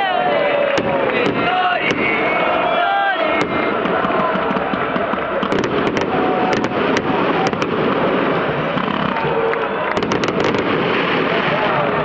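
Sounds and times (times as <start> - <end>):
crowd chanting and cheering: 0.0 - 12.0
firecrackers popping: 3.3 - 12.0.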